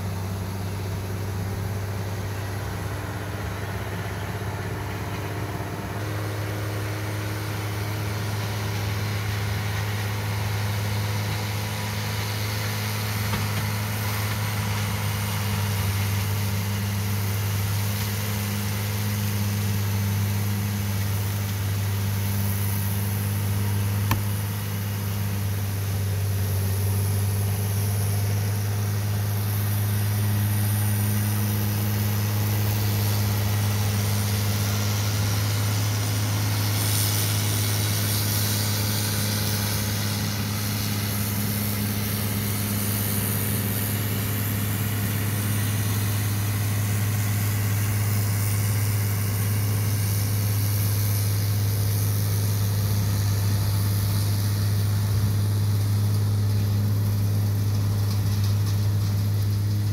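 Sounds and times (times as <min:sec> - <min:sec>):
tractor diesel engine running: 0:00.0 - 0:59.9
sharp click: 0:24.1 - 0:24.3.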